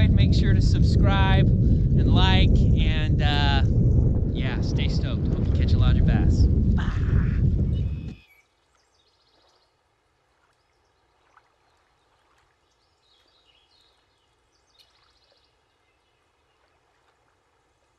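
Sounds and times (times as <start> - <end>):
faint birdsong trills: 6.8 - 17.7.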